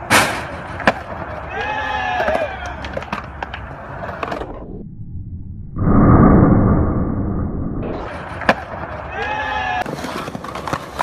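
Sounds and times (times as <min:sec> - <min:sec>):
skateboard clacking: 0:00.0 - 0:04.4, 0:09.8 - 0:11.0
skateboard wheels rolling on concrete: 0:00.0 - 0:04.7, 0:08.0 - 0:11.0.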